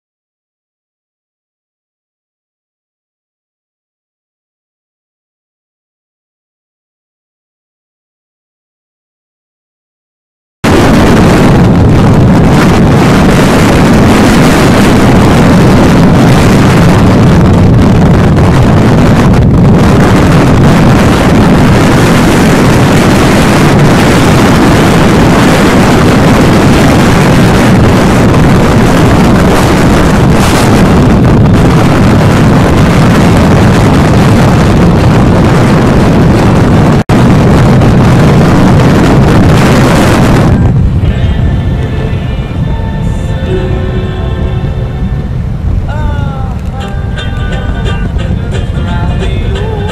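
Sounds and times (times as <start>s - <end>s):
road noise: 10.6s - 49.9s
wind buffeting microphone: 10.6s - 49.9s.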